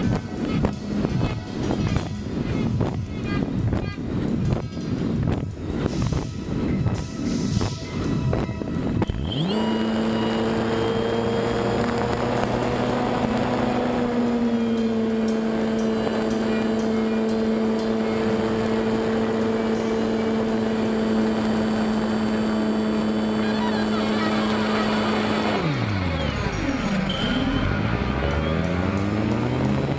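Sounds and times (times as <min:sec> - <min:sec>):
model airplane motor droning: 0:09.0 - 0:29.9.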